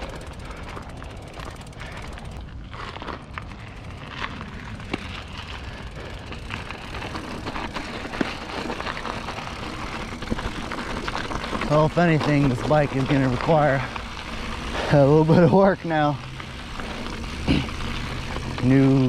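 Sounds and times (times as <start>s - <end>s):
bike clicks and knocks: 0.0s - 19.0s
wind and tyre rumble: 0.0s - 19.0s.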